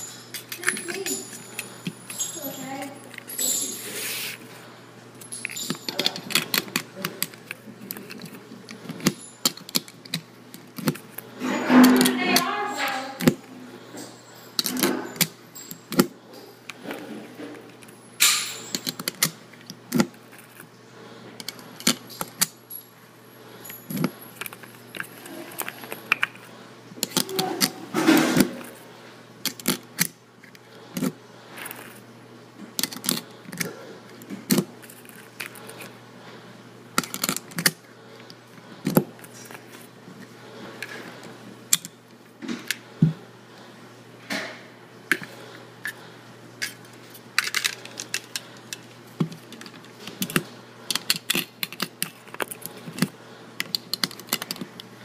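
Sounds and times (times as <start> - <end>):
metallic clicking and clinking: 0.0 - 3.8, 5.2 - 13.4.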